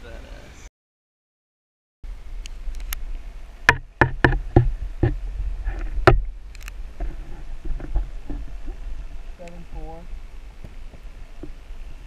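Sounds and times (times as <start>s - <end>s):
underwater low rumble: 2.1s - 12.0s
camera housing knocks and clicks: 3.7s - 5.2s.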